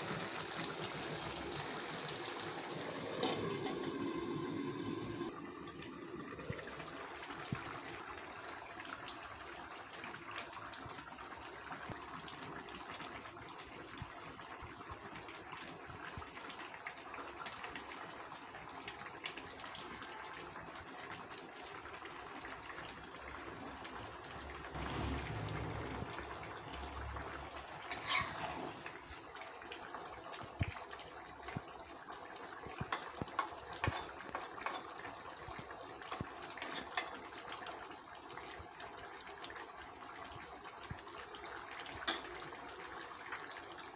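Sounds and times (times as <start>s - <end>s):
curry bubbling in a metal pot: 0.0s - 43.9s
metal spatula scraping a pot: 27.8s - 29.0s, 36.6s - 37.2s.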